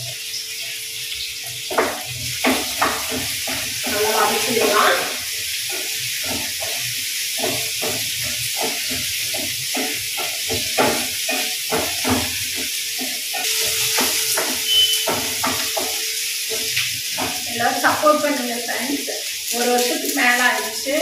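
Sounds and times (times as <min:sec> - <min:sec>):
onions sizzling in oil: 0:00.0 - 0:21.0
spatula scraping pan: 0:01.6 - 0:18.3.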